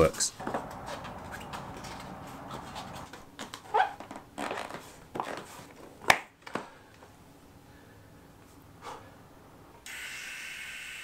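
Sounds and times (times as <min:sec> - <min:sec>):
hands scraping and knocking tyre: 0:00.4 - 0:06.3.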